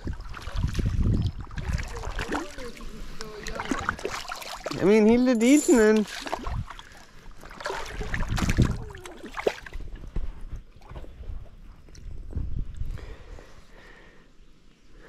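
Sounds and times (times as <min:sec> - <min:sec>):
fish splashing in water: 0:00.0 - 0:04.8, 0:05.8 - 0:09.8.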